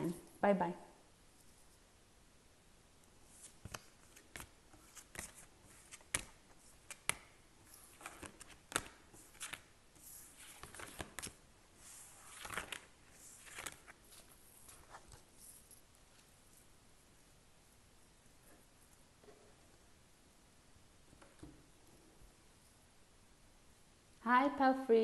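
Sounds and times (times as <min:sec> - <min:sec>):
cards tapping and clicking: 0:03.6 - 0:07.3, 0:08.0 - 0:09.6.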